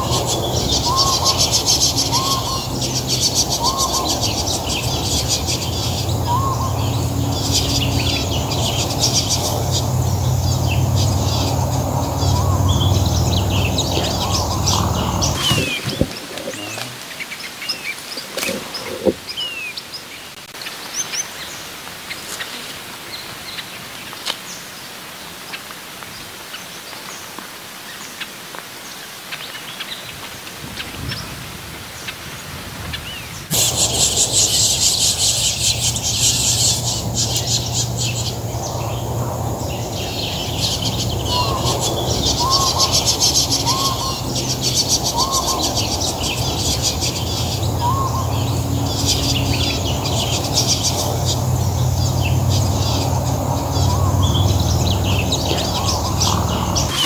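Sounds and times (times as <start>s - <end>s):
low hum: 0.0s - 17.0s
small birds chirping: 0.0s - 24.6s, 32.9s - 57.0s.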